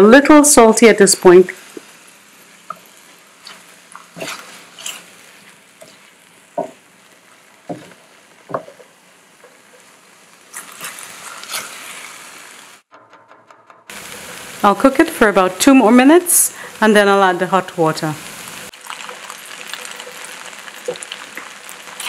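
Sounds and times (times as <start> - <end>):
rice sizzling in oil: 0.2 - 12.9, 13.9 - 22.0
spatula stirring rice in pan: 1.7 - 12.5
spatula scraping and knocking pan: 7.6 - 9.9.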